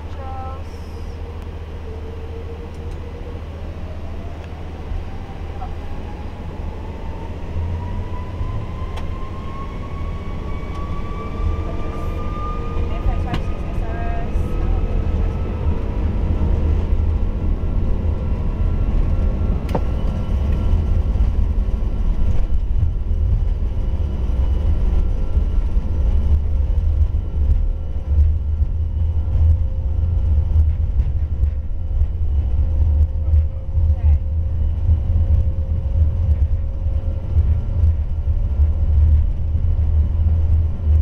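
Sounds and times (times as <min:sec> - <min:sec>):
aircraft low rumble: 0:00.0 - 0:41.0.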